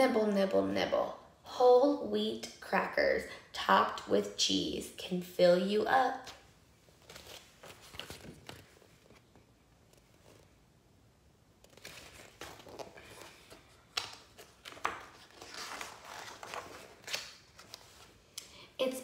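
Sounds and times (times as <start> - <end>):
book pages turning: 6.2 - 10.6, 11.6 - 18.4.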